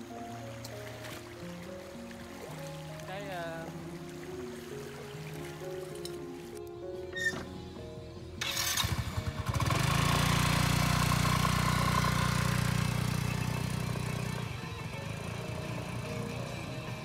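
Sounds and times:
motorcycle engine starting and running: 8.4s - 17.0s.

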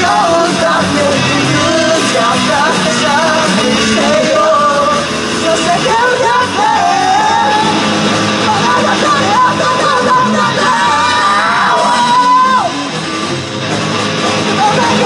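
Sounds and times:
person singing: 0.0s - 7.8s, 8.4s - 12.7s, 14.5s - 15.0s
live rock band playing: 0.0s - 15.0s.

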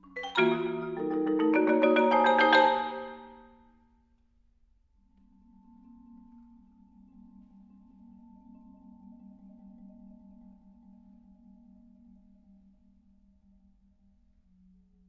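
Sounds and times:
marimba and vibraphone chord: 0.2s - 3.4s.

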